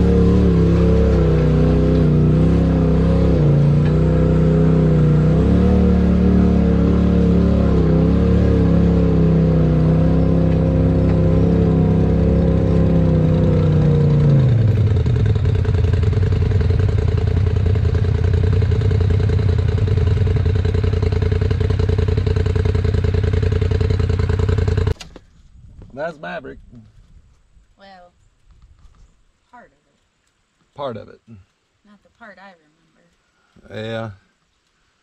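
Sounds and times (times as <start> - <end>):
side-by-side engine idling: 0.0 - 25.0.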